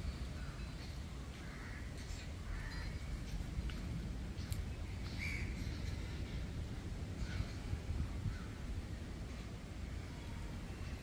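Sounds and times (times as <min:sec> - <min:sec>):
crows cawing: 0:01.4 - 0:03.0
steady low rumble: 0:02.3 - 0:11.0.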